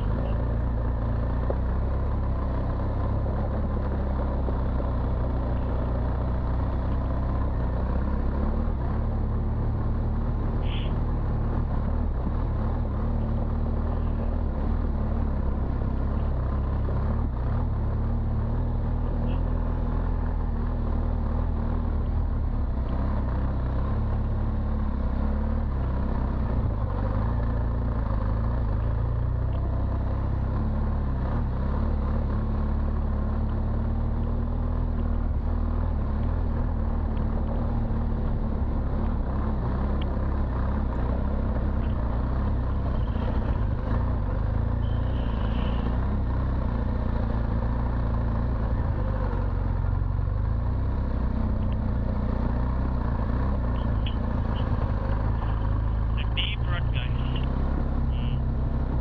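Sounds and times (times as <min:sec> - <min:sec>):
motorcycle engine rumbling: 0:00.0 - 0:30.8, 0:34.0 - 0:59.0.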